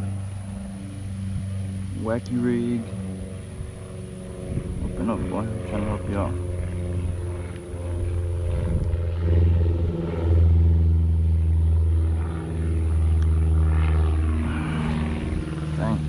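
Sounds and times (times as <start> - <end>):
motor engine running: 0.0 - 16.0.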